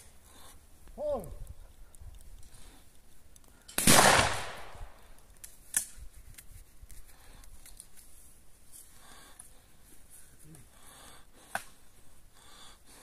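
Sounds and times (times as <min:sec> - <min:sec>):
shotgun shot: 0:03.8 - 0:05.0.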